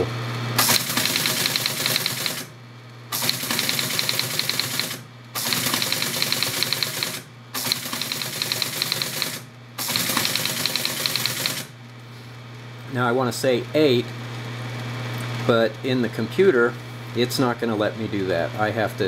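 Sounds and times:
motor humming: 0.0s - 12.3s
teletype printing clatter: 0.6s - 2.5s, 3.1s - 11.8s.

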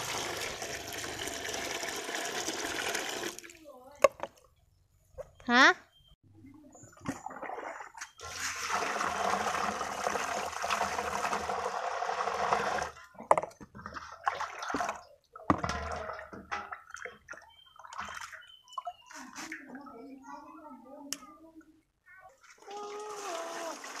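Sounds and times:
water pouring into steel basin: 0.0s - 3.5s, 7.3s - 13.0s, 22.6s - 24.0s.

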